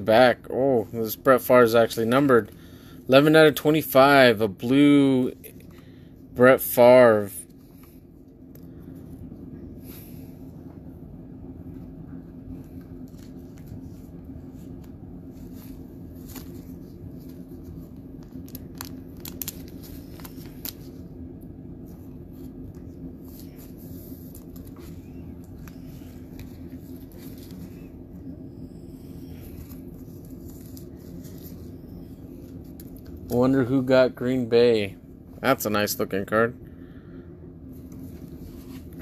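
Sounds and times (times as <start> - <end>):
steady low hum: 0.0 - 39.0
plastic rustling: 13.0 - 21.0.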